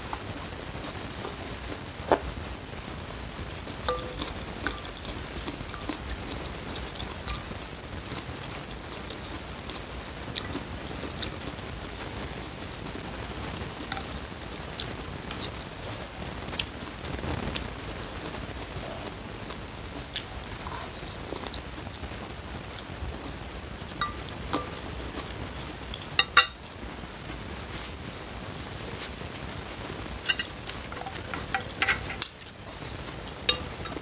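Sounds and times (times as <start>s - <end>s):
man chewing noodles: 3.2s - 26.5s, 28.2s - 34.0s
cutlery clinking on ceramic bowl: 3.9s - 5.1s, 24.0s - 24.8s, 26.2s - 26.6s, 30.3s - 32.5s, 33.5s - 34.0s.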